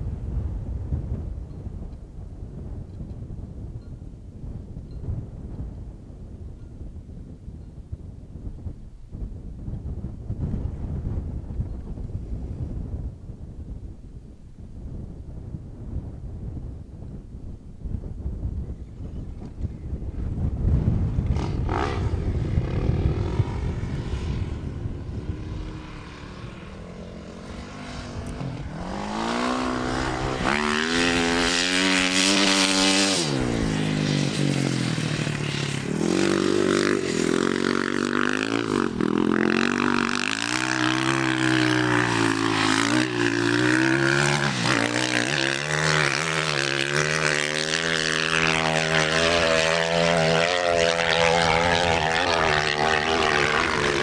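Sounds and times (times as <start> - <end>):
wind noise on microphone: 0.0 - 54.0
dirt bike engine revving: 21.3 - 54.0.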